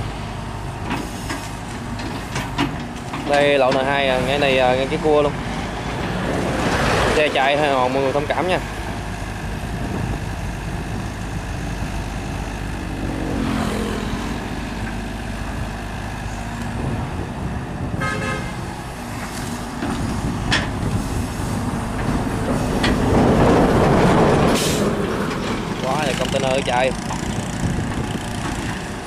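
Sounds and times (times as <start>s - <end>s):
road traffic passing: 0.0s - 29.0s
car horn honk: 18.0s - 18.6s.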